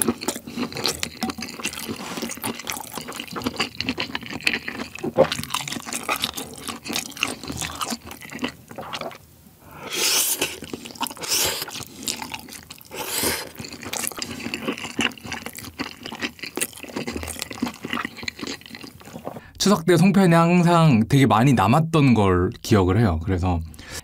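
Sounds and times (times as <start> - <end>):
wet chewing: 0.0 - 9.2, 9.8 - 19.5
slurping noodles: 0.0 - 19.5.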